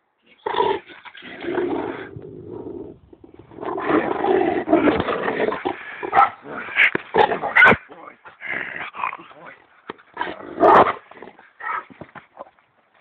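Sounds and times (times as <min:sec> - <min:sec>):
large dog growling deeply: 0:00.5 - 0:07.6.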